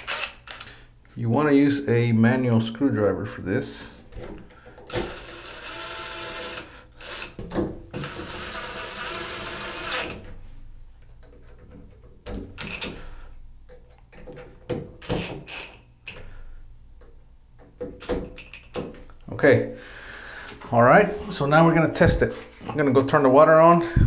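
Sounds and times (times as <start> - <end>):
cordless drill driving screws: 4.9 - 7.4, 8.0 - 10.2.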